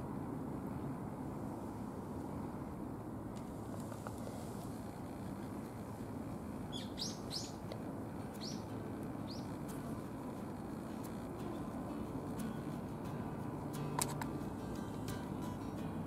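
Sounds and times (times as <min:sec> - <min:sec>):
low outdoor background rush: 0:00.0 - 0:16.0
small bird chirping: 0:06.6 - 0:07.7, 0:08.3 - 0:09.6.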